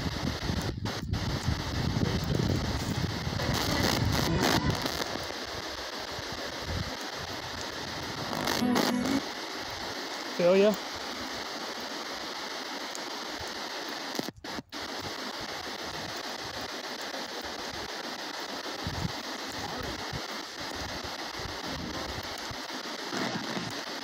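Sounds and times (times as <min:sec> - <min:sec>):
radio static hiss: 0:00.0 - 0:24.0.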